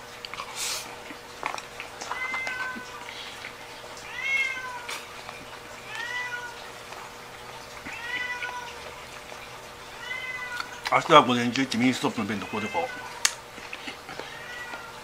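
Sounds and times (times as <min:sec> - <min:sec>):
cat meowing: 0:02.0 - 0:03.0, 0:04.0 - 0:05.1, 0:05.8 - 0:06.7, 0:07.8 - 0:08.9, 0:09.9 - 0:10.8, 0:12.3 - 0:13.4, 0:14.1 - 0:15.0.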